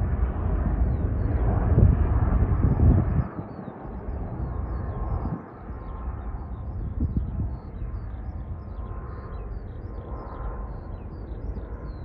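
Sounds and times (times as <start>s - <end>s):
distant jet engines rumbling: 0.0s - 12.0s
small birds chirping: 2.5s - 12.0s.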